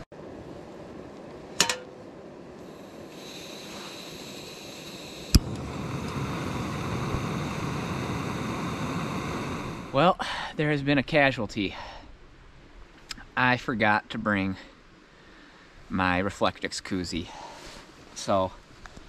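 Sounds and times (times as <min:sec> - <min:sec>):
faint gas hiss: 0:00.4 - 0:19.0
gas burner rushing: 0:02.6 - 0:10.1.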